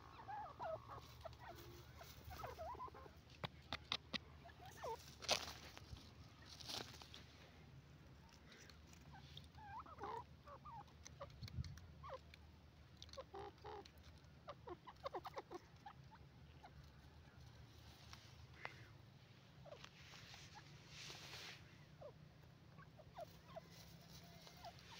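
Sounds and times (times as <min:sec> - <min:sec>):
bird clucking: 0:00.0 - 0:06.5, 0:08.5 - 0:12.4, 0:13.0 - 0:17.7, 0:19.6 - 0:20.8, 0:21.5 - 0:24.9.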